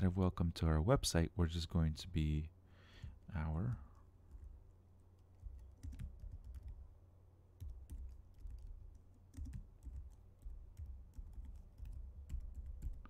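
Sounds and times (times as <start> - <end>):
typing on computer keyboard: 5.2 - 6.8, 7.6 - 13.0.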